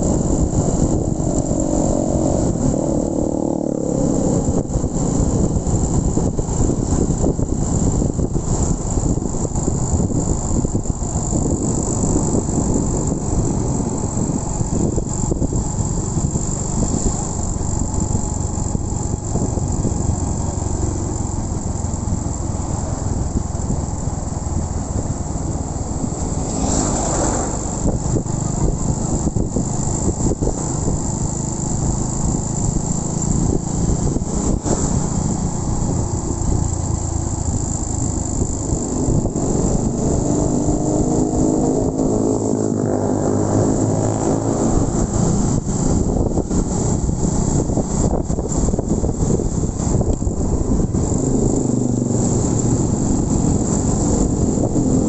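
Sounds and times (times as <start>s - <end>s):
motorcycle engine running: 0.0s - 55.0s
road noise rushing: 0.0s - 55.0s
loud whoosh: 25.5s - 28.6s.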